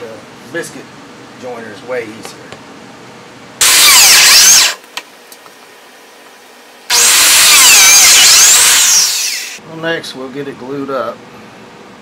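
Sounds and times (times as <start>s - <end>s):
biscuit joiner cutting wood: 6.9s - 9.6s.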